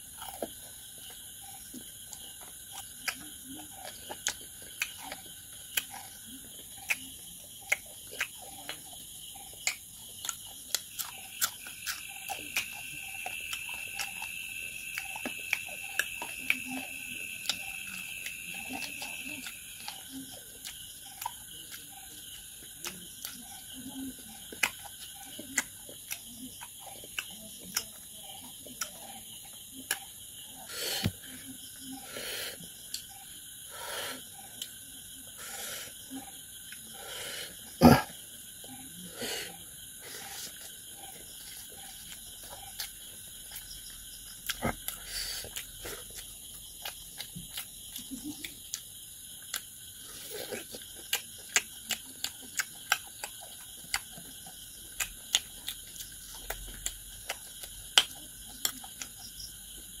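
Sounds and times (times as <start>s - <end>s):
man chewing food: 0.0s - 60.0s
wet lip-smacking: 50.3s - 59.2s.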